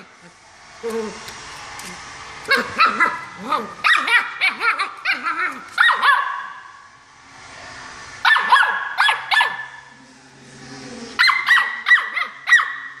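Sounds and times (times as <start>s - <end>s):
puppy yapping: 2.5s - 6.6s, 11.2s - 13.0s.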